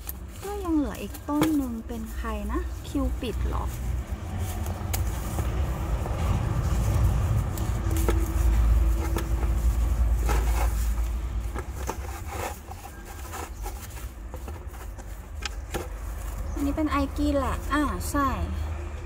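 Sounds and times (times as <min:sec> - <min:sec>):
rustles: 0:00.0 - 0:18.2
deep low rumble: 0:00.8 - 0:12.2.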